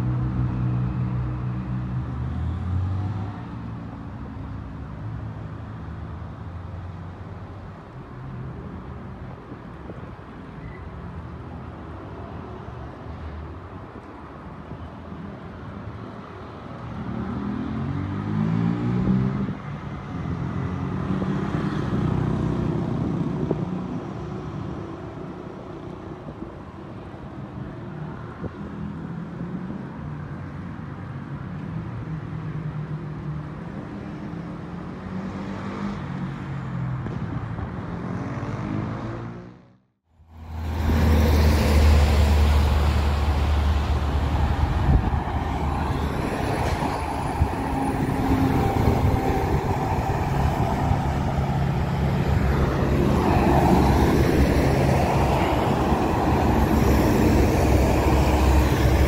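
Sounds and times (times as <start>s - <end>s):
truck diesel engines accelerating: 34.8s - 59.0s.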